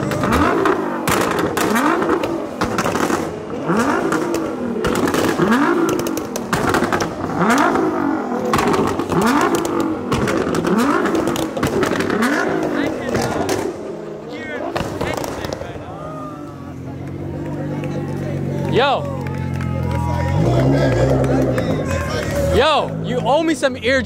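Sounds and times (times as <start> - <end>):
exhaust pops and crackles: 0.0 - 14.0, 14.6 - 24.0
car engine revving hard: 0.0 - 15.6, 20.2 - 23.4.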